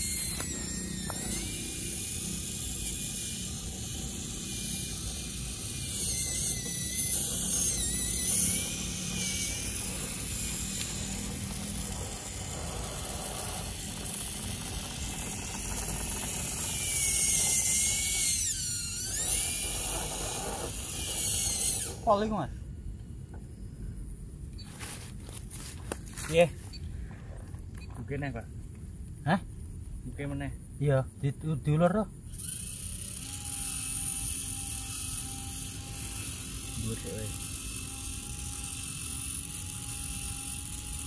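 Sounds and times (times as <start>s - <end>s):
electric motor and gears whining: 0.0s - 28.4s, 30.1s - 41.0s.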